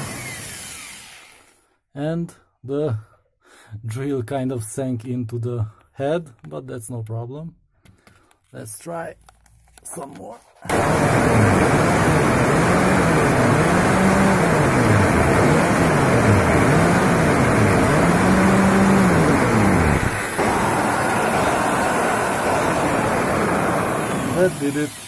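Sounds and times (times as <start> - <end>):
hammer drill drilling into concrete: 0.0 - 1.6, 10.7 - 25.0.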